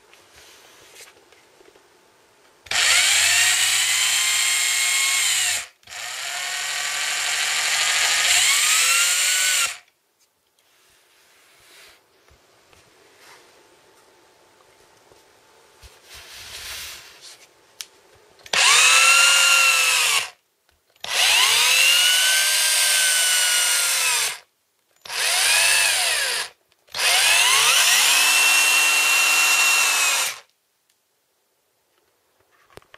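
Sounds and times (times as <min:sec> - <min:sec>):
cordless drill whining: 0:02.7 - 0:09.9, 0:18.5 - 0:20.4, 0:21.0 - 0:30.5.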